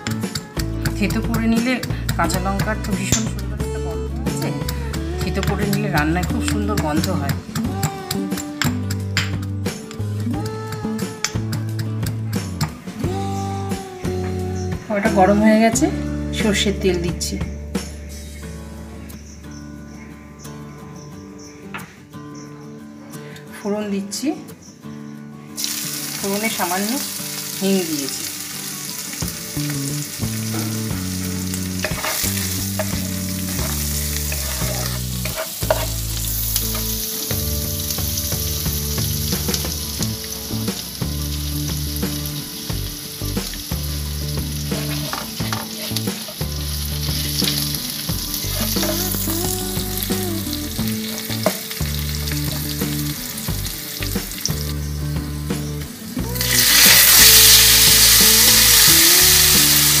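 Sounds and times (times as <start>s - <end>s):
loud sizzle of vegetables frying: 25.6s - 60.0s
oil sizzling in a pan: 25.6s - 60.0s.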